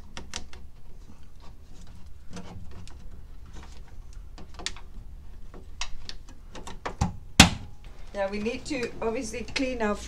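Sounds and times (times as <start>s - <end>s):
sharp knocks: 6.9s - 7.8s.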